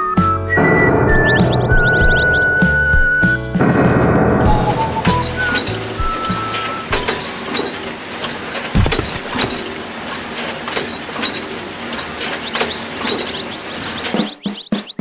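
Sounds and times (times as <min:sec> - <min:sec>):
dull thump: 0:08.8 - 0:09.6.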